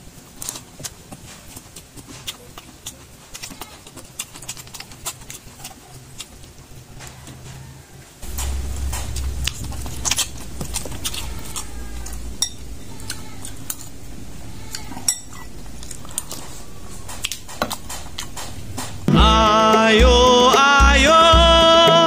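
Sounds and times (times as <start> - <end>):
mouth chewing with wet smacks: 0.4 - 7.4, 14.7 - 19.1
metal spoon clinking: 12.4 - 13.9, 14.8 - 16.0.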